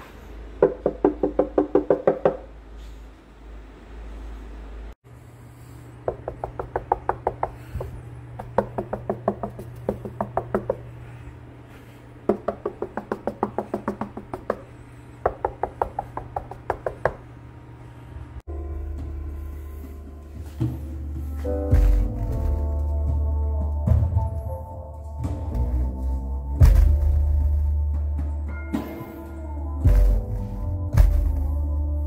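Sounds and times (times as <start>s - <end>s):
knuckles knocking on wooden panel: 0.6s - 2.4s, 6.1s - 10.9s, 12.3s - 14.7s, 15.3s - 17.2s
subwoofer playing deep bass: 18.5s - 28.7s, 29.3s - 32.0s.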